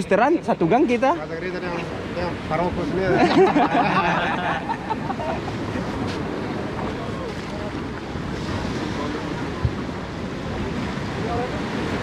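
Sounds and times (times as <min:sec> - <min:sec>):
surf washing onto beach: 0:00.0 - 0:12.0
wind on microphone: 0:04.3 - 0:12.0.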